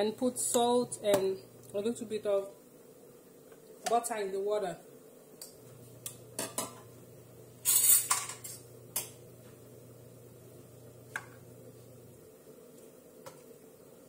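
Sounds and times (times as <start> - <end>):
low steady hum: 0.0 - 2.6, 5.4 - 12.6
dishes clattering scrape: 6.4 - 6.9, 7.6 - 8.7
dishes and utensils clinking: 7.6 - 8.7.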